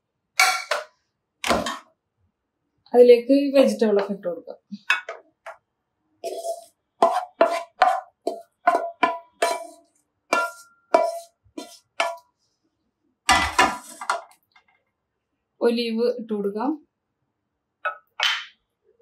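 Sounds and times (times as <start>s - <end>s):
spatula clinking on glass dish: 6.3s - 12.2s
frying pan clattering on grate: 13.3s - 14.3s.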